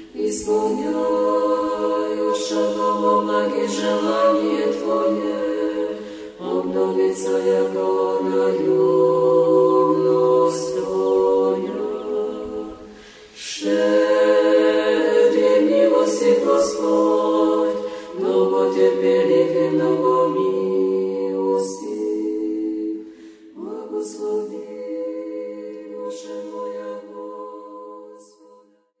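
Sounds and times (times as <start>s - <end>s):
unaccompanied choir chanting: 0.0s - 28.9s.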